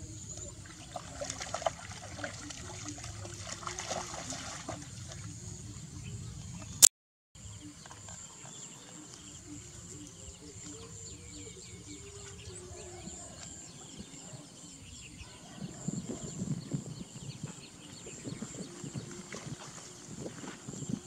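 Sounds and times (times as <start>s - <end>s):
high insect drone: 7.4s - 15.2s.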